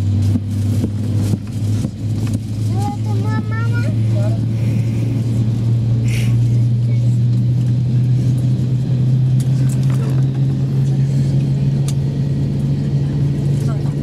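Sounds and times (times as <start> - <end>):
aircraft cabin drone: 0.0 - 14.0.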